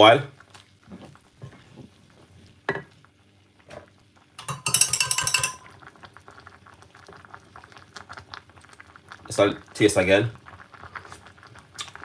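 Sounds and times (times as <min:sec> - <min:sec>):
metal cutlery clinking: 0:04.4 - 0:05.7
wooden spoon knocking on pot: 0:04.4 - 0:05.7.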